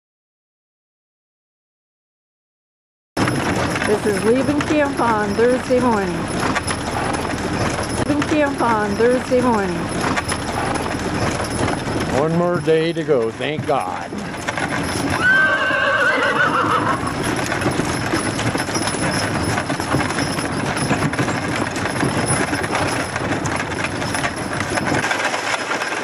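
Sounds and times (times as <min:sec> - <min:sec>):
horses clip-clopping on gravel: 0:03.2 - 0:26.0
wagon clattering: 0:03.2 - 0:26.0
horse whinnying: 0:14.2 - 0:17.9.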